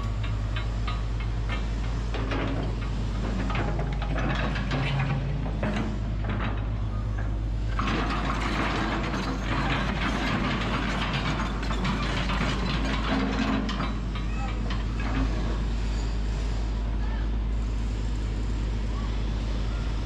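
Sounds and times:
metallic clanking and rattling: 0.0 - 16.0
excavator engine droning: 0.0 - 20.0.

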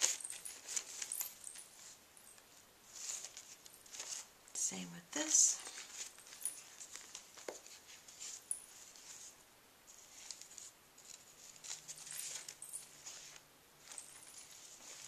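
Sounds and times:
paper napkins rustling and crinkling: 0.0 - 4.4, 5.2 - 15.0.

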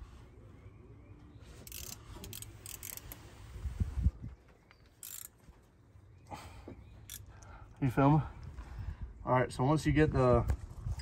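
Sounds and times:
metal parts clicking and scraping: 1.6 - 3.2, 4.8 - 5.5.

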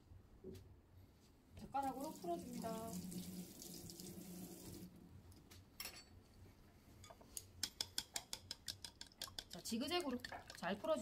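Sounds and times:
water running: 1.6 - 5.0
chopsticks clicking against ceramic bowl: 7.4 - 9.7.

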